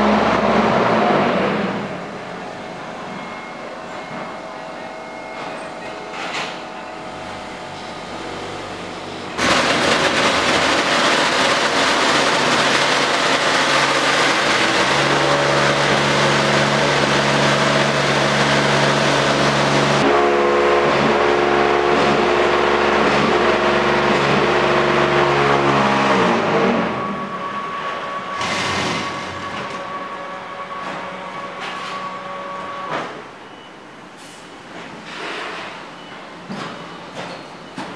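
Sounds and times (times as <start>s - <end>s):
machine hum: 0.0s - 32.9s
loud steady rattling: 9.3s - 26.5s.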